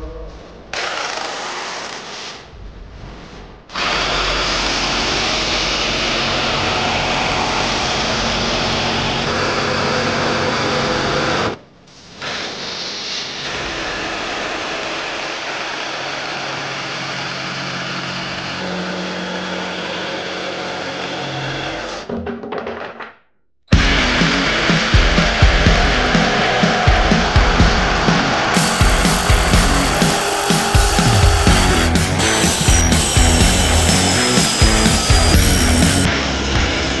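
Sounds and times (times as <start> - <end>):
jigsaw cutting plywood: 0.7 - 2.2, 28.5 - 36.1.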